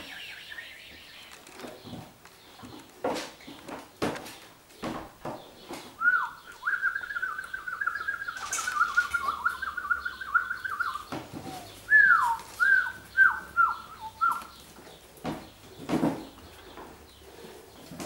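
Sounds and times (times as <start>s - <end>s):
puppy whining: 10.8s - 13.0s.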